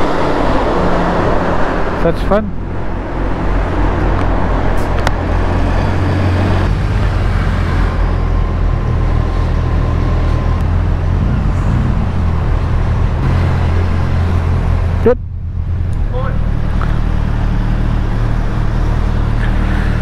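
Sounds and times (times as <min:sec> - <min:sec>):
road and wind noise: 0:00.0 - 0:20.0
motorcycle engine droning: 0:05.2 - 0:20.0.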